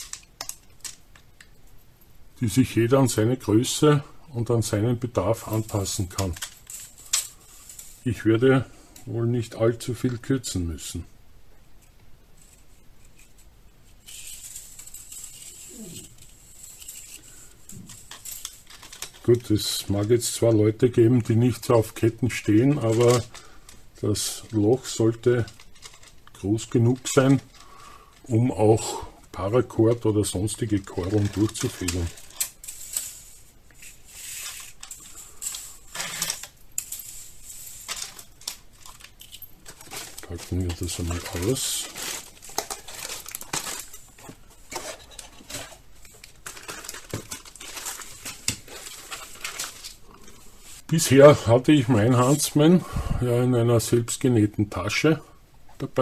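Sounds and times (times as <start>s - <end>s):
metal ball chain rattling: 5.4s - 8.1s, 14.0s - 19.5s, 30.2s - 49.7s.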